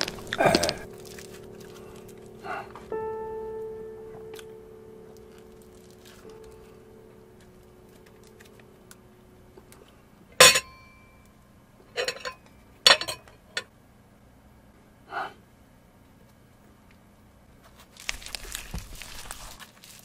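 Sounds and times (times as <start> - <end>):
sharp ringing clink: 10.4 - 11.3.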